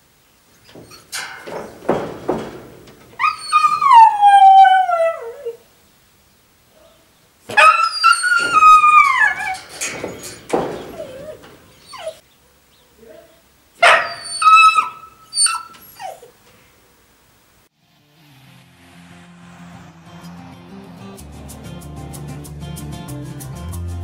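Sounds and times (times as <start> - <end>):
dog howling: 0.7 - 5.7, 7.5 - 12.2, 13.8 - 16.3.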